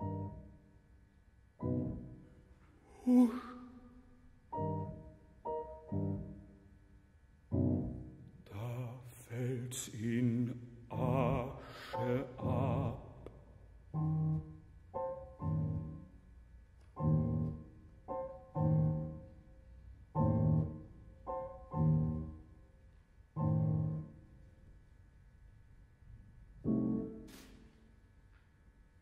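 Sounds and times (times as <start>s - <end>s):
grand piano chords: 0.0s - 0.9s, 1.6s - 24.9s, 26.4s - 28.1s
baritone singing with vibrato: 2.9s - 3.9s, 8.5s - 13.4s.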